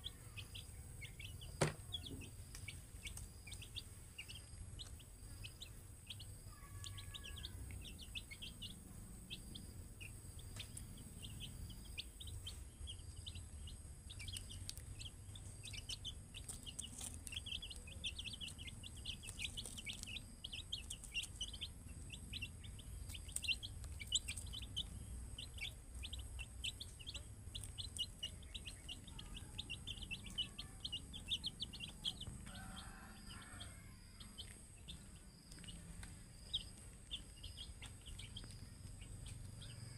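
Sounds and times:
chicks peeping: 0.0s - 39.9s.

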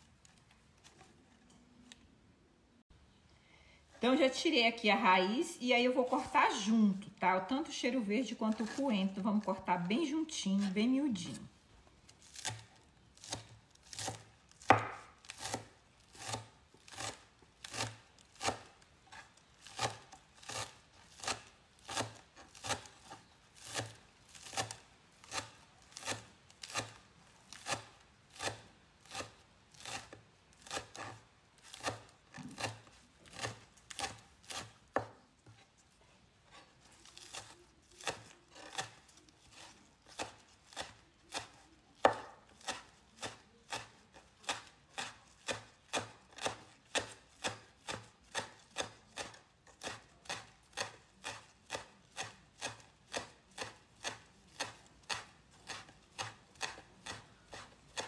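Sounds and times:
knife chopping on wooden board: 8.6s - 8.8s, 12.2s - 35.6s, 36.5s - 58.0s.

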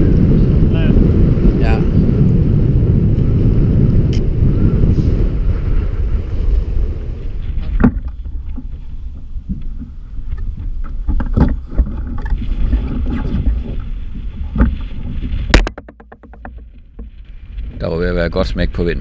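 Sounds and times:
wind buffeting microphone: 0.0s - 19.0s
water slapping hull: 7.4s - 17.6s
knocks on kayak hull: 15.5s - 17.1s.

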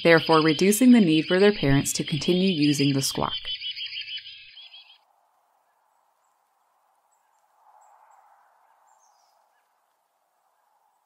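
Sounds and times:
high bird chirps: 0.0s - 5.0s
faint outdoor hiss: 4.2s - 11.0s.

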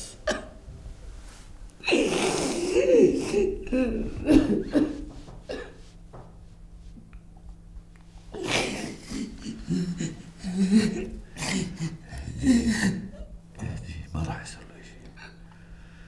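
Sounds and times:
woman sobbing and crying: 1.8s - 5.6s, 8.3s - 13.5s.

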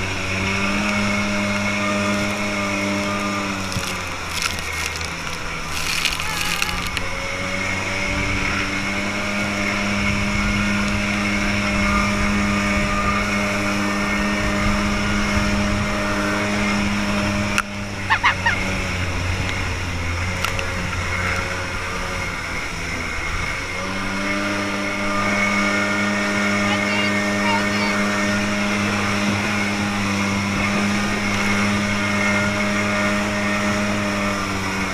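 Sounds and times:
boat engine running: 0.0s - 34.9s.

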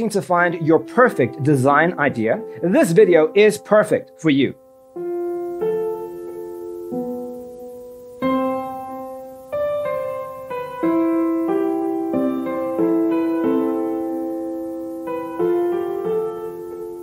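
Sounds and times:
gentle piano chords: 0.0s - 17.0s.

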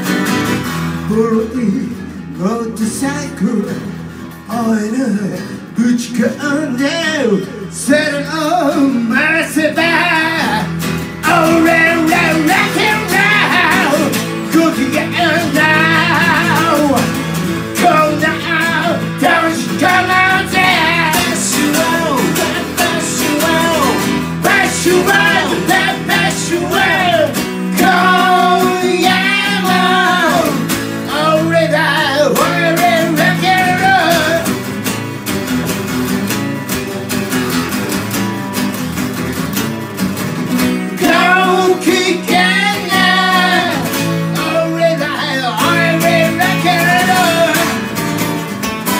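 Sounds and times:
acoustic guitars: 0.0s - 48.9s
person singing: 4.5s - 17.2s, 17.8s - 34.6s, 41.0s - 48.0s.

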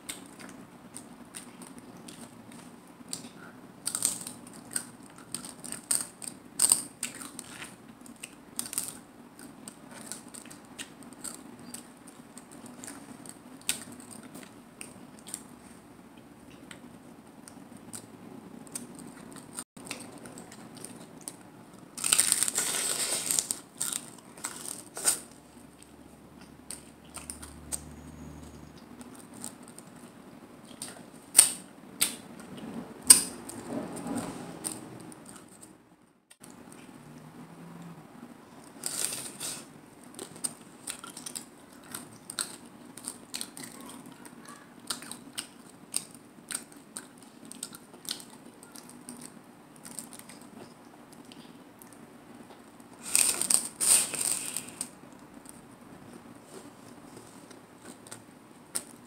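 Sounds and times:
chewing crunchy taco shell: 0.1s - 15.5s, 38.6s - 59.0s.

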